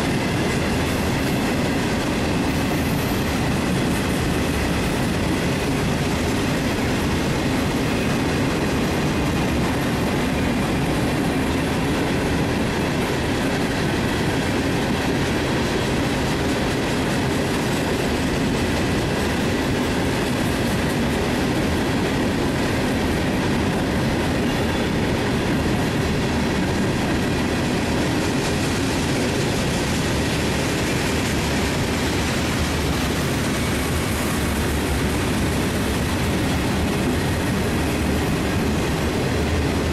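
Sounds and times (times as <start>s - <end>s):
train wheels running on rails: 0.0s - 39.9s.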